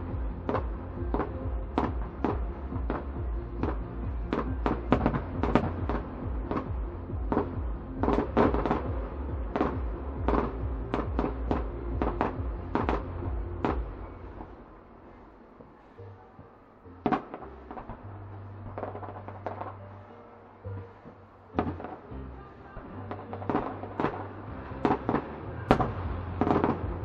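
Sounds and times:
low rumble: 0.0 - 27.0.

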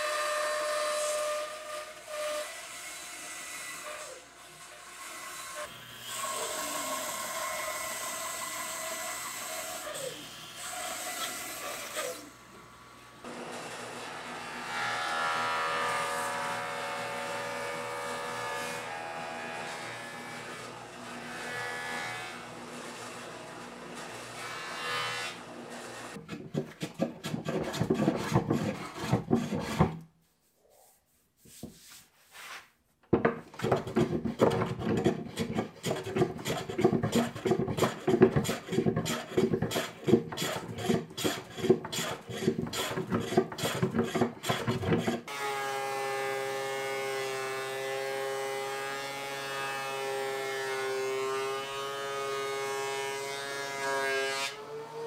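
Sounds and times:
hand tool rasping wood: 26.1 - 30.1, 33.2 - 45.3.

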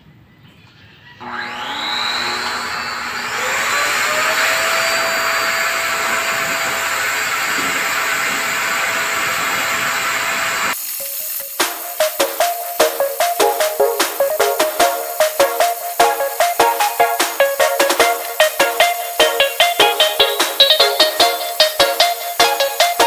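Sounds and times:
pet dryer blowing air: 1.2 - 10.8.

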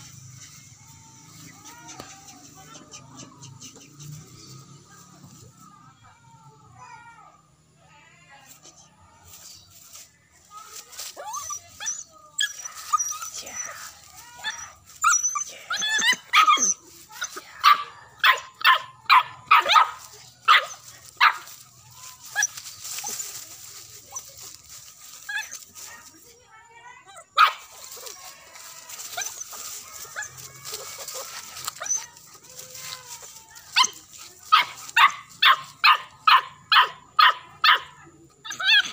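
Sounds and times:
dog yelping: 11.2 - 21.5, 29.0 - 38.9
dog whining: 14.5 - 16.8
dog barking: 17.6 - 21.4, 27.4 - 27.7, 34.5 - 37.9.

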